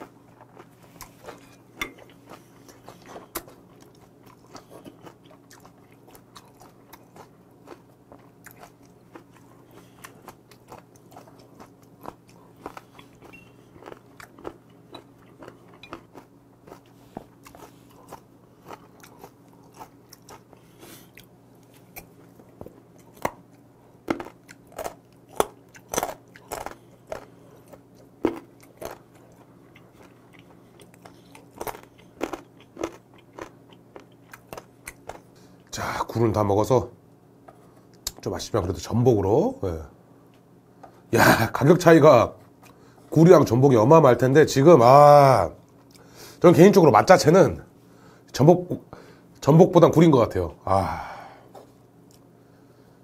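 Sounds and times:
person chewing and biting: 0.0s - 35.7s
steady low hum: 0.0s - 53.0s.

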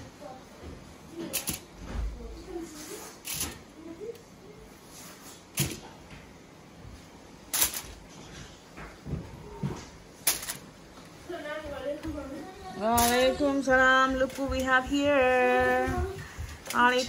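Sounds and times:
faint voices: 11.2s - 17.0s.

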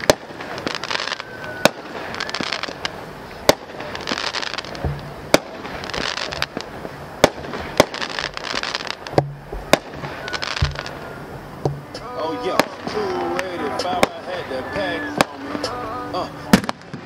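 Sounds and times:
firework hiss: 0.0s - 17.0s
firework reports: 0.0s - 17.0s
hip-hop music with deep bass: 11.8s - 16.7s.

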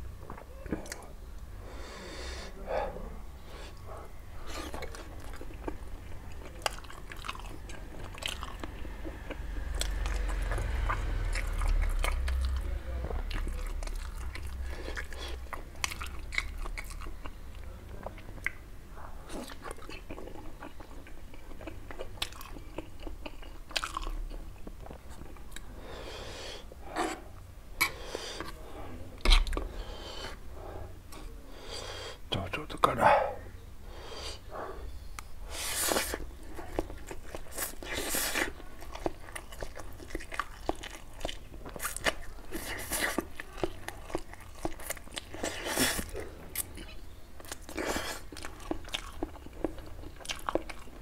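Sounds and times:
close chewing and biting: 3.8s - 18.6s, 19.2s - 25.7s, 35.2s - 51.0s.

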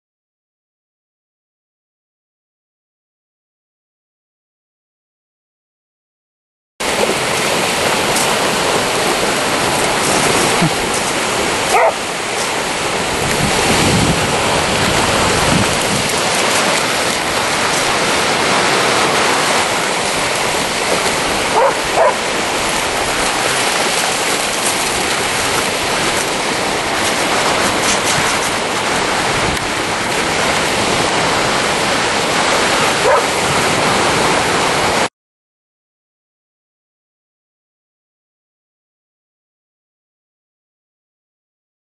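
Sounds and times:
sea surf washing onto beach: 6.8s - 35.1s
dog barking: 11.7s - 12.1s, 21.5s - 22.3s, 33.0s - 33.4s.

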